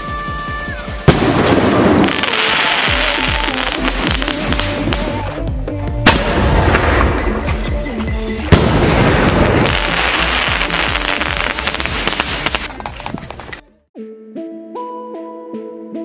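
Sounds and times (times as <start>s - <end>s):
firework bangs: 0.0s - 5.4s, 6.0s - 7.6s, 8.5s - 13.6s
hissing crackle: 0.0s - 5.5s
background music: 0.0s - 16.0s.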